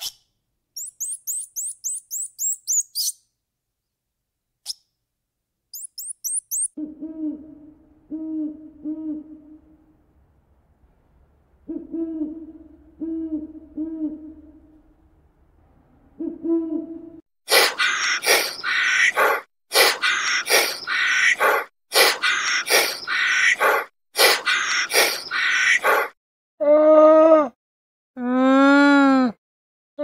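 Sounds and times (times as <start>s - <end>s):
owl hooting: 5.8s - 9.9s, 11.6s - 14.8s, 17.5s - 26.2s.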